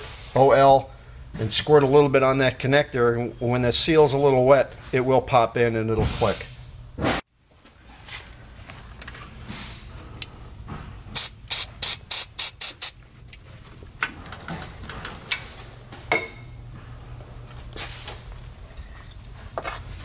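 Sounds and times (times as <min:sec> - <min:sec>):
aerosol can spraying: 0:11.2 - 0:13.0.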